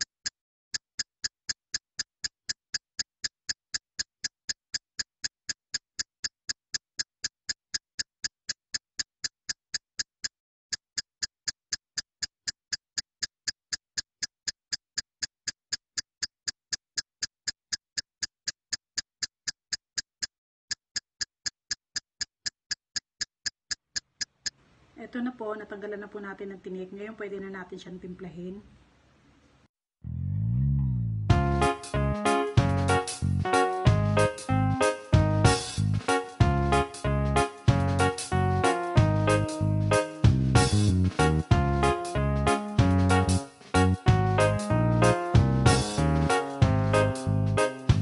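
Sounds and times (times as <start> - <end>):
sharp ticking: 0.0 - 24.6.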